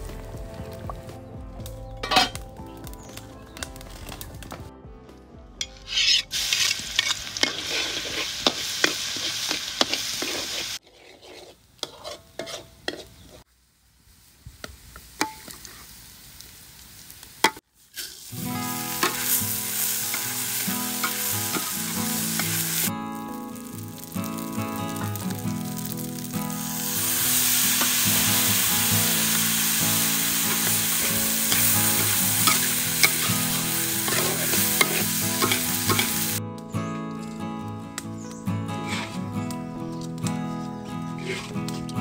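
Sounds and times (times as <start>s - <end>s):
metal spatula scraping a wok: 5.7s - 13.4s, 30.0s - 36.4s, 38.8s - 39.3s, 41.1s - 41.9s
food sizzling in oil: 5.9s - 13.2s, 14.2s - 36.4s.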